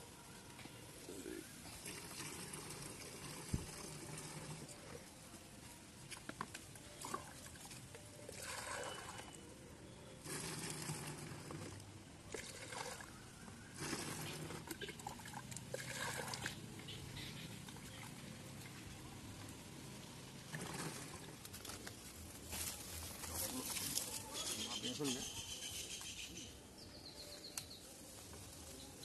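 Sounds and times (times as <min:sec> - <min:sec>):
liquid splashing into plastic tank: 0:07.0 - 0:09.4.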